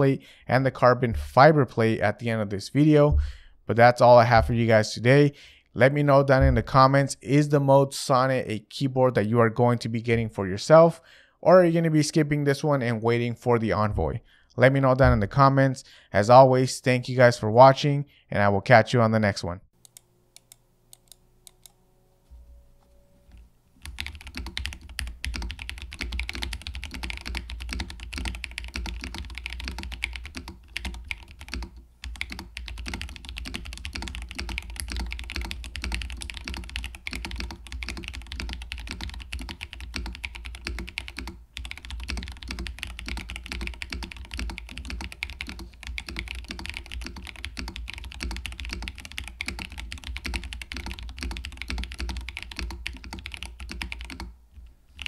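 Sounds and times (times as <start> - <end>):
mechanical keyboard typing: 23.8 - 54.3.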